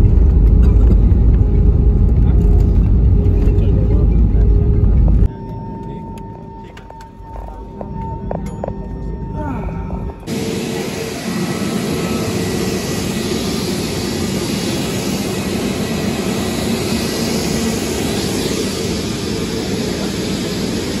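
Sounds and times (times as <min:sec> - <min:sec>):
jet aircraft noise: 0:00.0 - 0:08.4, 0:10.2 - 0:21.0.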